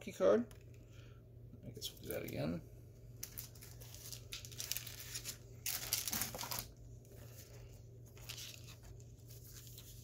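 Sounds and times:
low steady hum: 0.0s - 10.0s
plastic sleeves crinkling: 3.2s - 10.0s.

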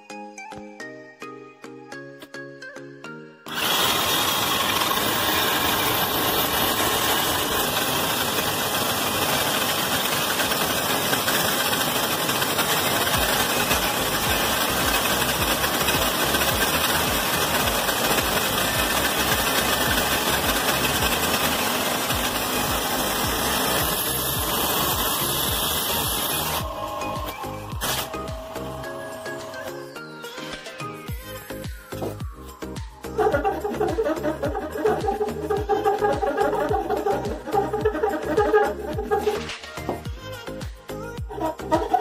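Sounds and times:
band saw cutting wood: 3.5s - 30.0s, 33.1s - 40.1s.

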